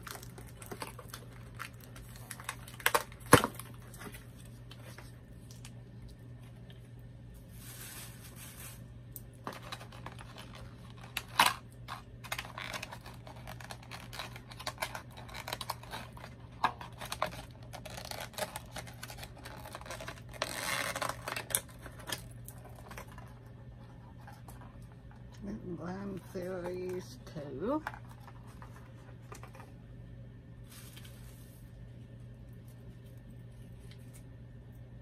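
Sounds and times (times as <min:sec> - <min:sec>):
packaging rustling: 0:00.0 - 0:05.8, 0:07.4 - 0:23.6, 0:30.6 - 0:32.2
steady low hum: 0:00.0 - 0:35.0
packaging clicks and scrapes: 0:07.6 - 0:24.9.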